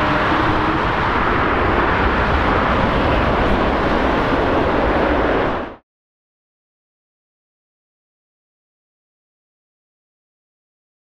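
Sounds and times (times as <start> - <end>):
jet engines roaring: 0.0 - 5.8.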